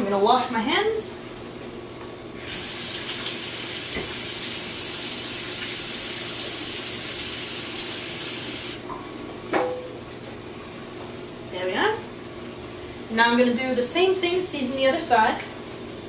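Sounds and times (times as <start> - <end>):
tap water into steel sink: 3.0 - 4.2.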